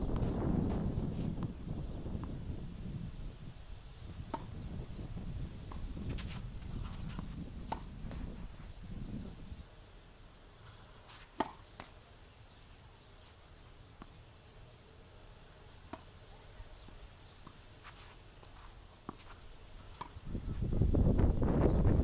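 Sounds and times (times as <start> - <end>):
wind rumbling on microphone: 0.0 - 9.7, 19.4 - 22.0
tennis ball bounces: 4.2 - 4.7, 5.6 - 8.4, 11.2 - 12.1, 13.8 - 14.3, 15.7 - 20.3.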